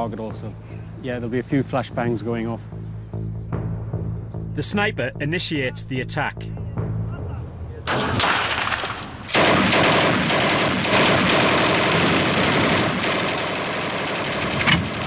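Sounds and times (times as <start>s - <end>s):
machine gun rapid automatic fire: 7.9s - 15.0s.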